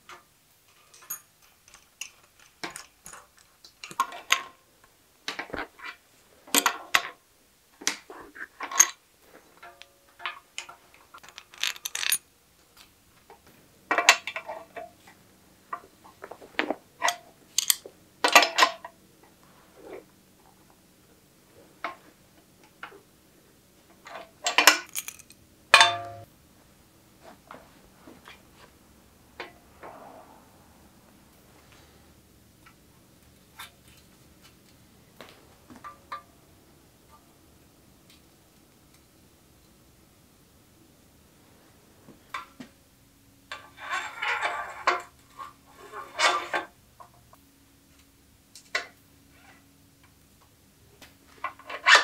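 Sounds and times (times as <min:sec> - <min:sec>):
small metal parts clinking: 0:00.7 - 0:04.3, 0:10.6 - 0:12.2, 0:17.6 - 0:17.8, 0:24.5 - 0:26.2.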